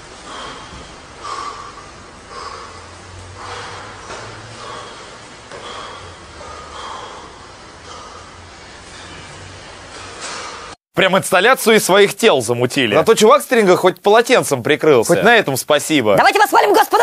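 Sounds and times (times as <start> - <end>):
sharp forceful exhalations: 0.0 - 9.2.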